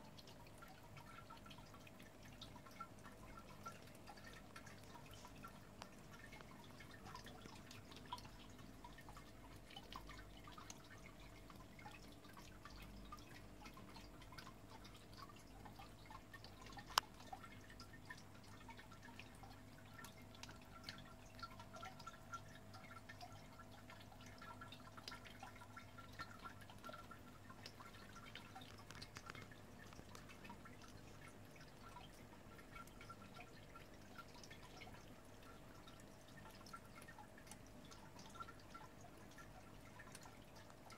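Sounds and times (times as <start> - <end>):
faint steady hum: 0.0 - 40.9
water dripping into basin: 0.0 - 40.9.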